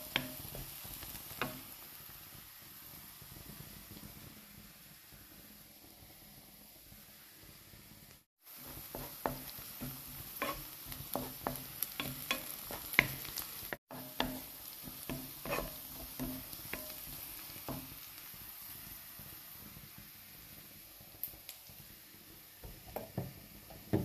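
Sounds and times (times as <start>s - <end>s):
onions sizzling in a frying pan: 0.0s - 24.0s
spatula scraping a pan: 8.5s - 17.9s.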